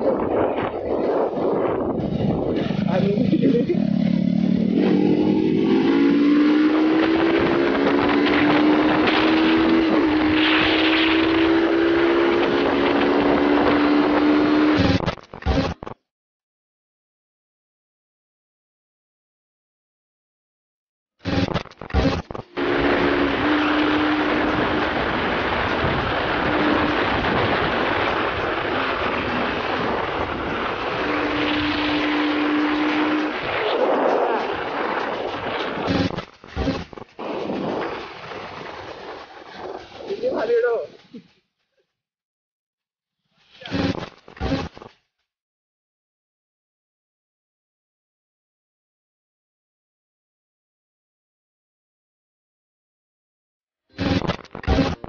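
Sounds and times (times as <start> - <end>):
wind roaring over microphone: 0.0 - 14.6, 22.7 - 36.2
motorcycle engine accelerating: 1.1 - 15.8, 21.2 - 39.9.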